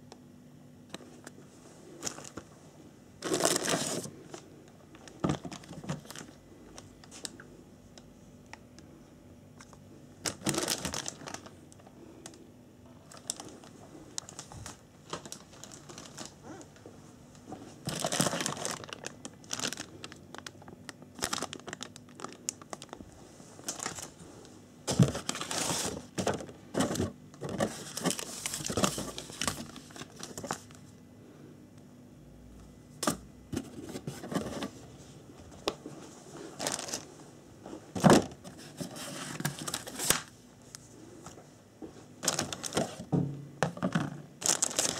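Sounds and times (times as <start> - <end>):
plastic bags crinkling: 1.9 - 2.4, 3.2 - 7.4, 10.2 - 12.4, 13.0 - 16.8, 17.6 - 24.2, 24.9 - 30.8, 36.4 - 37.2, 37.9 - 40.4, 42.2 - 44.9
plastic parts knocking: 42.3 - 44.2.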